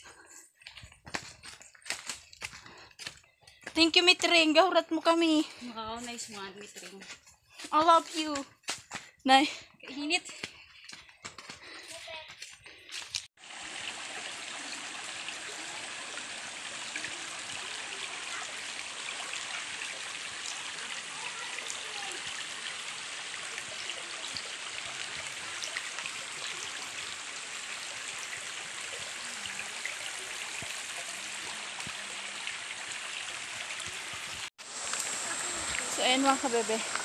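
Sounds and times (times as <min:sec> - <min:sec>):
water rushing over stones: 0:13.4 - 0:37.0.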